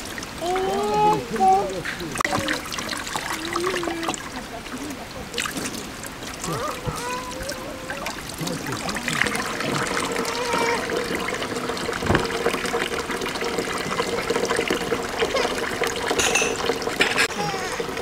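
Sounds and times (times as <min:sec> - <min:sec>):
water pouring into a tray: 0:00.0 - 0:18.0
single knock: 0:12.0 - 0:12.3.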